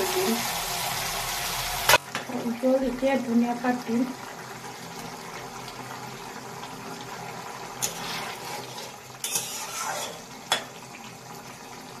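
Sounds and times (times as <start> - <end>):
curry simmering hiss: 0.0 - 12.0
spoon scraping pan: 7.8 - 10.7.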